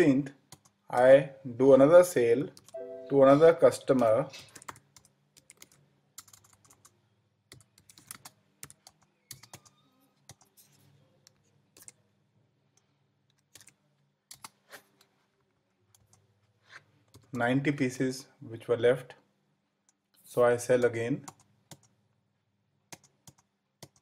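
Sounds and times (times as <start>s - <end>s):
keyboard typing: 0.5s - 1.1s, 2.5s - 12.0s, 13.3s - 14.7s, 15.9s - 16.3s, 21.2s - 22.0s, 22.9s - 24.0s.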